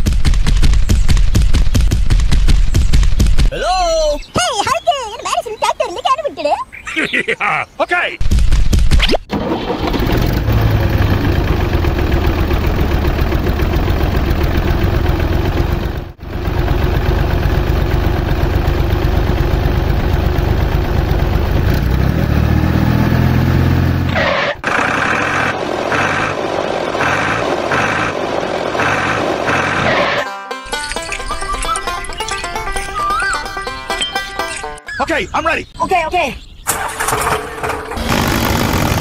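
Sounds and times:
tractor engine rumbling: 0:09.3 - 0:35.8, 0:36.5 - 0:39.0
music: 0:30.2 - 0:34.9.

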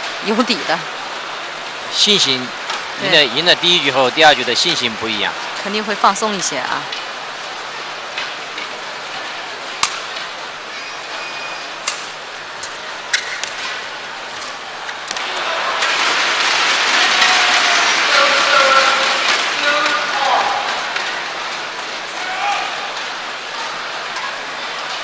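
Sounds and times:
crowd cheering: 0:00.0 - 0:25.0
crowd hum: 0:00.0 - 0:25.0
racket striking shuttlecock: 0:13.1 - 0:13.7.

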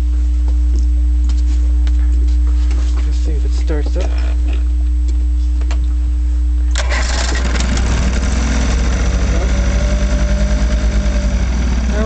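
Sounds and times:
electric starter hum: 0:06.7 - 0:12.0
outboard engine running: 0:06.8 - 0:12.0.

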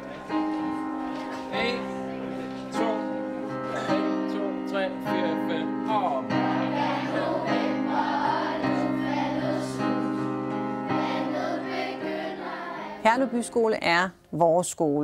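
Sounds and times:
instrumental accompaniment: 0:00.0 - 0:14.3
children singing together: 0:06.2 - 0:13.0.

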